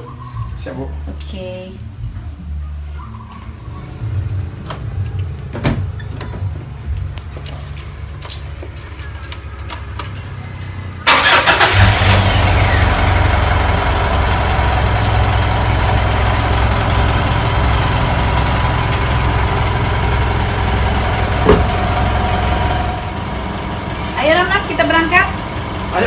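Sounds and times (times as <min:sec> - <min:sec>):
car engine starting and idling: 0:04.1 - 0:26.0.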